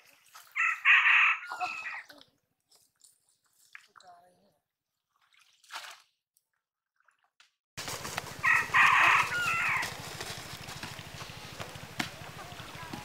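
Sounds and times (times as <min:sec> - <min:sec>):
water splash: 0:00.0 - 0:00.7, 0:05.2 - 0:06.2
rooster crowing: 0:00.6 - 0:02.0, 0:08.3 - 0:10.0.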